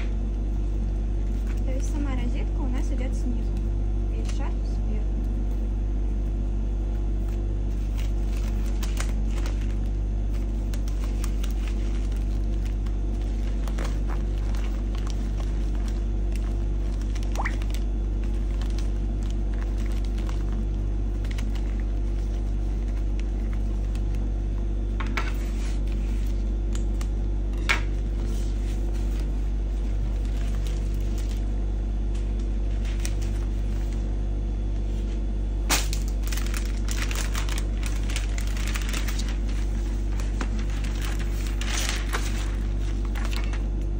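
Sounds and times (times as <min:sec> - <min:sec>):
steady low hum: 0:00.0 - 0:43.9
paper rustling: 0:00.5 - 0:02.0, 0:06.9 - 0:24.2, 0:25.0 - 0:27.1, 0:27.8 - 0:31.5, 0:32.1 - 0:34.1, 0:35.7 - 0:43.8.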